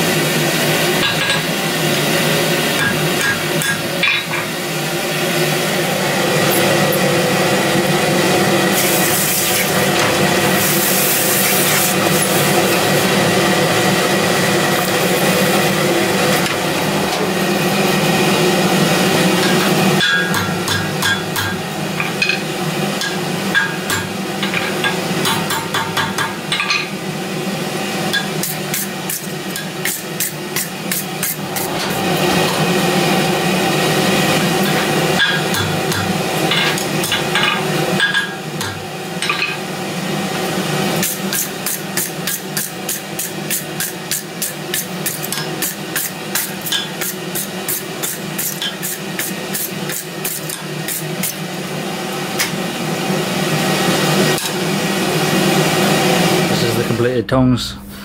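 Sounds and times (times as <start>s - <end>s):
wire brush scrubbing hot steel: 28.1s - 32.6s, 41.0s - 51.6s.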